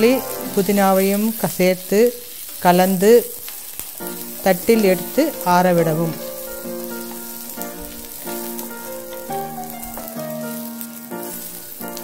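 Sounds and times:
background music of held notes: 0:00.0 - 0:01.2, 0:04.0 - 0:12.0
oil sizzling in a pan: 0:00.0 - 0:12.0.

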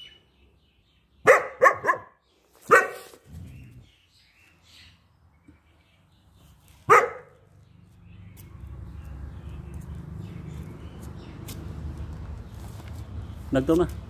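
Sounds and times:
dog barking: 0:01.2 - 0:03.2, 0:06.9 - 0:07.4.

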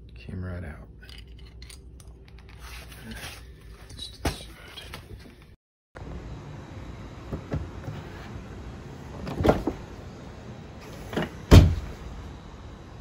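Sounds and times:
car door motor and mechanism: 0:10.8 - 0:12.0
car door shutting thud: 0:11.1 - 0:12.0.

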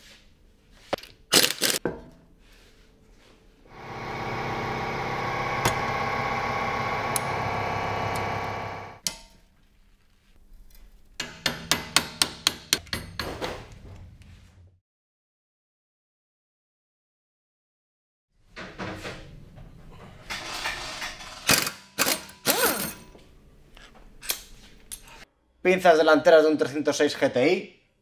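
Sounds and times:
mechanical whirring: 0:03.7 - 0:09.0.

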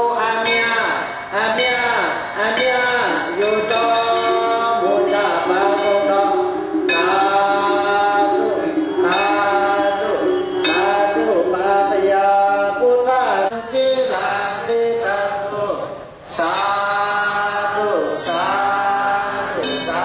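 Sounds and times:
man chanting melodically: 0:00.0 - 0:20.0.

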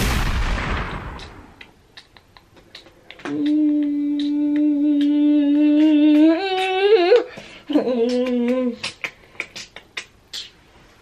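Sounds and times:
person humming held notes: 0:02.4 - 0:09.8.

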